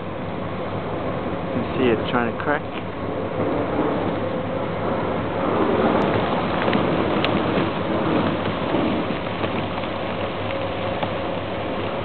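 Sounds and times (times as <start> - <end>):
ice grinding against hull: 5.6 - 12.0
ice cracking: 6.0 - 12.0.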